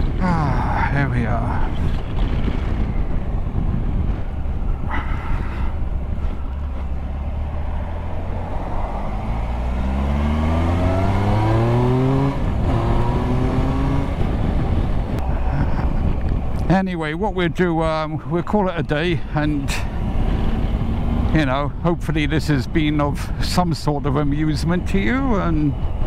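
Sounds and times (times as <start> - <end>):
wind noise: 0.0 - 26.0
motorcycle engine accelerating: 5.9 - 15.2, 20.0 - 21.5.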